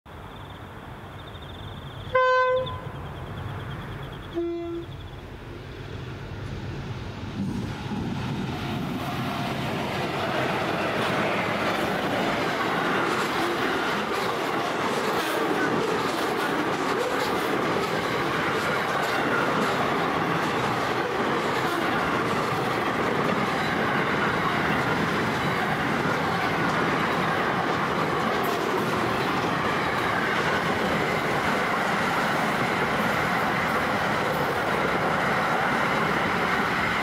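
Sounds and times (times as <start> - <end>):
train horn blasts: 2.1 - 3.0, 4.3 - 5.0
train wheels clickety-clack: 7.3 - 37.0.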